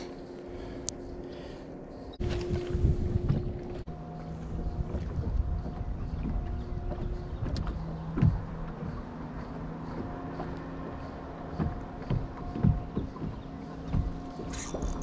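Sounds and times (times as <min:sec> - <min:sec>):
electric trolling motor humming: 0:00.0 - 0:15.0
knocks on boat: 0:04.9 - 0:09.0, 0:11.5 - 0:14.6.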